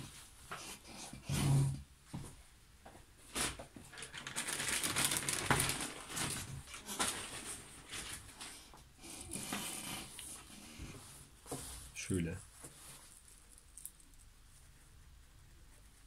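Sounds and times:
cloth rustling: 3.3 - 8.7.

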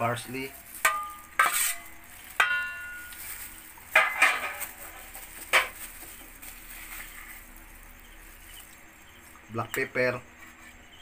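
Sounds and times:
metal spoon clinking on steel bowl: 0.8 - 3.2.

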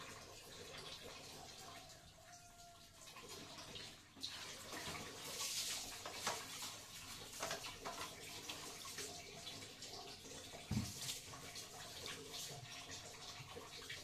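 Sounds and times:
sponge wiping ceramic toilet: 3.2 - 14.0.

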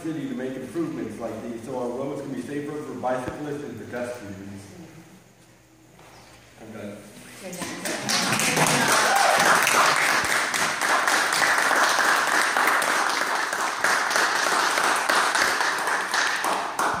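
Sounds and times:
audience applauding: 7.8 - 17.0.

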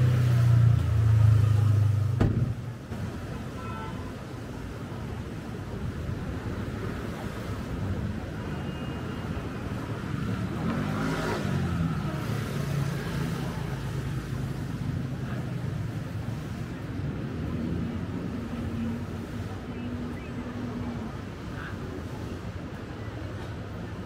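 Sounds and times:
road noise: 0.0 - 24.0.

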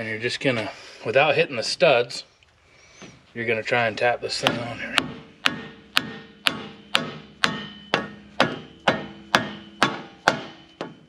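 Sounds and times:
metal hub ringing: 4.3 - 11.0
hammer tapping on metal: 4.4 - 11.0.

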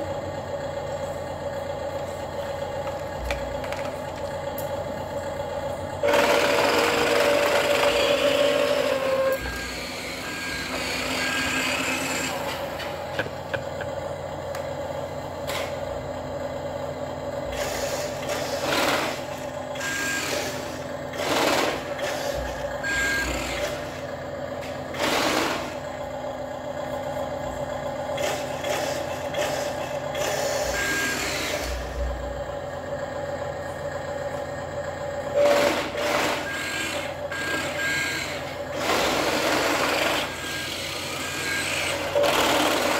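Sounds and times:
toy truck engine sound: 0.0 - 42.9
reversing beeps: 9.0 - 11.8, 19.8 - 20.4, 22.8 - 23.4, 30.7 - 31.4, 36.4 - 38.4, 40.4 - 41.9
air-brake hisses: 17.5 - 19.3.

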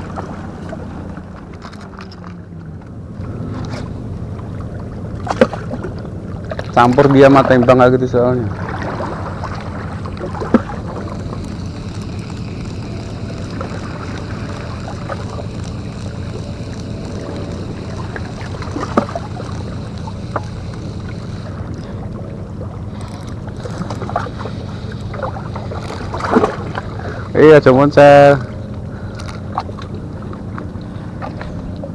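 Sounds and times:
low engine drone: 0.0 - 31.9
wind on microphone: 8.6 - 21.0
sharp clicks: 10.1 - 21.8.

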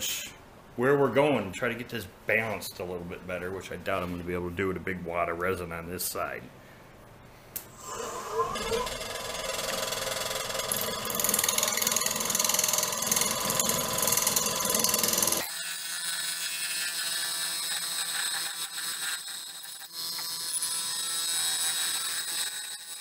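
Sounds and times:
lathe motor whine: 7.9 - 15.4
turning tool scraping wood: 7.9 - 15.4.

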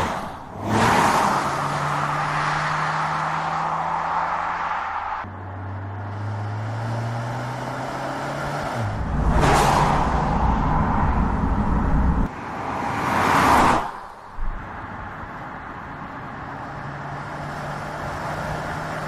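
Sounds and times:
car engine hum: 0.0 - 12.7.

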